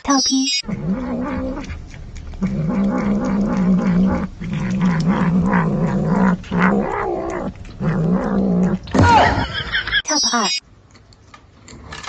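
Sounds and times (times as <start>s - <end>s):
cat growling: 0.6s - 9.4s.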